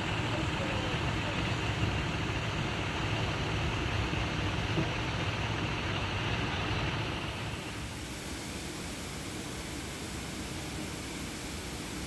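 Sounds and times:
diesel engine idling: 0.0 - 8.0.

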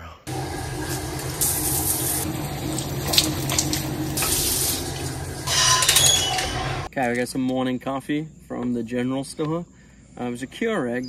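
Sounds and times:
shower spraying on tiles: 0.3 - 6.9.

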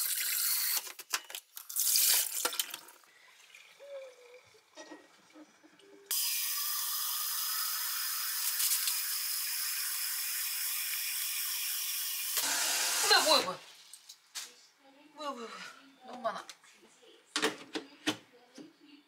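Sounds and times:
tap water pouring into plastic tank: 1.3 - 3.8.

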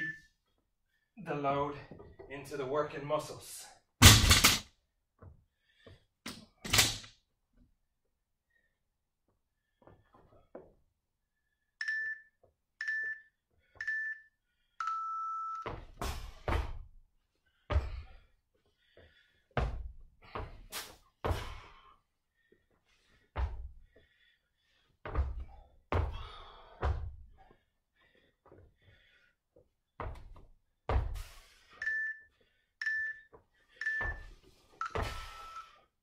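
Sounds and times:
interval timer beeps: 11.8 - 15.7, 31.8 - 35.7
feet thudding on rubber floor: 15.6 - 17.0, 17.7 - 18.2, 18.9 - 21.8, 23.2 - 24.1, 25.0 - 27.6, 30.0 - 31.4, 34.0 - 35.4.

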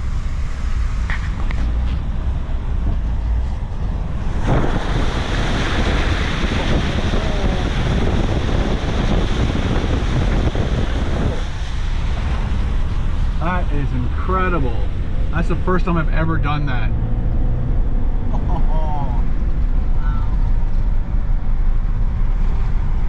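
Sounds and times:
van engine rumble: 0.0 - 23.0
wind: 0.0 - 23.0
water spraying off wheels: 4.2 - 16.2.

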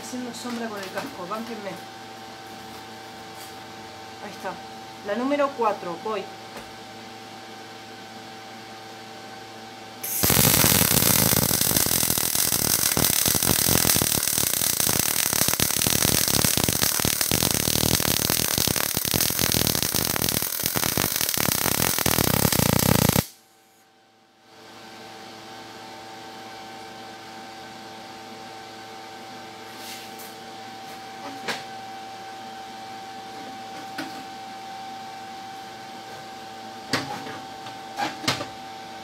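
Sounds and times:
steady low hum: 8.7 - 24.0
welding arc crackling: 10.0 - 23.4.

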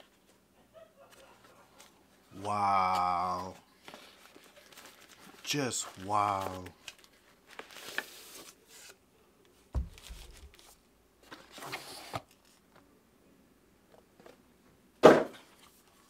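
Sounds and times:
box and paper rustling: 2.8 - 9.0, 9.8 - 12.6
loud scuff of packaging: 9.8 - 12.3.

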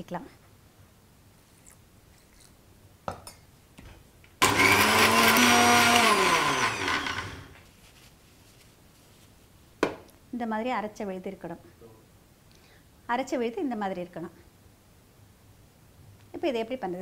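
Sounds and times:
mixer grinder motor running: 4.4 - 7.6.

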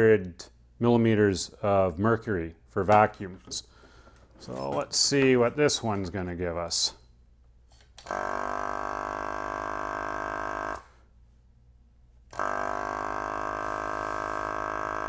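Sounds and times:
vacuum pump humming: 8.0 - 10.8, 12.3 - 15.0.

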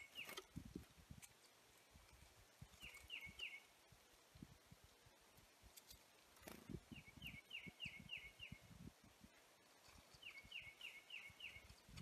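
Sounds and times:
songbird whistling: 7.0 - 8.6, 10.2 - 11.7.

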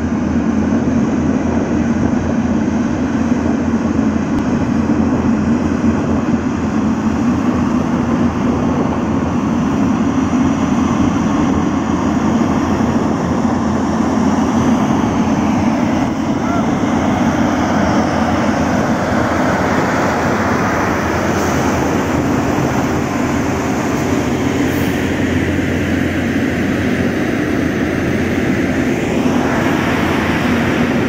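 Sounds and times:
heavy diesel engines droning: 0.0 - 31.0.

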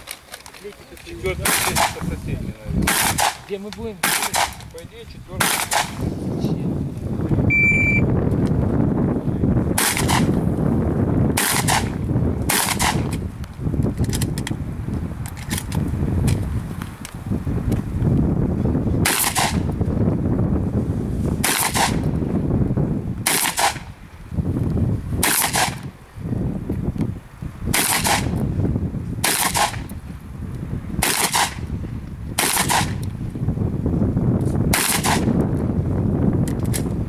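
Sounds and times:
steady low rumble: 1.1 - 37.0
shotgun shots: 1.4 - 2.0, 2.9 - 4.6, 5.4 - 6.0, 9.8 - 10.3, 11.4 - 13.1, 19.0 - 19.6, 21.4 - 22.0, 23.2 - 23.9, 25.2 - 25.8, 27.7 - 28.3, 29.2 - 29.8, 31.0 - 31.6, 32.4 - 33.0, 34.7 - 35.3.

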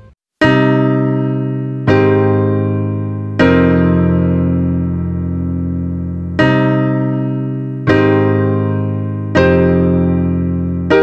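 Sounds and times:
slow piano chords: 0.0 - 11.0.

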